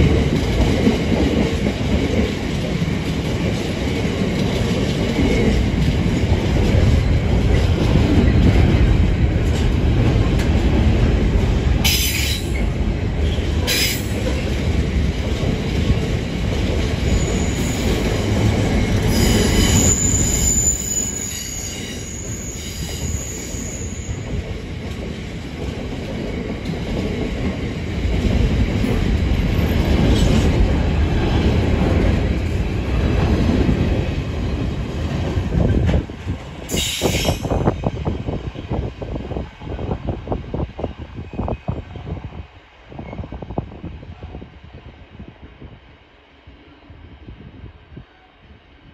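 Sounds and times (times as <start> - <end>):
train wheels rumbling on rails: 0.0 - 48.0
high wheel squeal: 17.0 - 18.4, 19.0 - 24.3.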